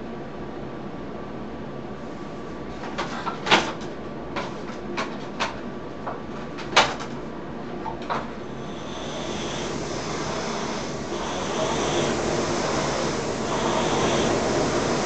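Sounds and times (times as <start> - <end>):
steady background hiss: 8.5 - 15.0.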